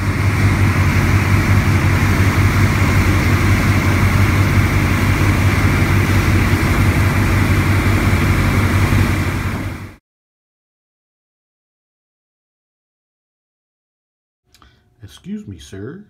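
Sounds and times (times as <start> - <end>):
boat engine droning: 0.0 - 10.0
water churning in wake: 0.0 - 10.0.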